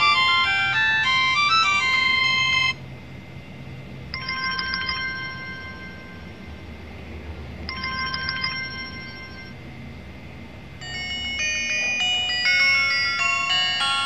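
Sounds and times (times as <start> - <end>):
electronic alarm ringing trill: 0.0 - 2.8, 4.1 - 6.6, 7.6 - 9.6, 10.8 - 14.0.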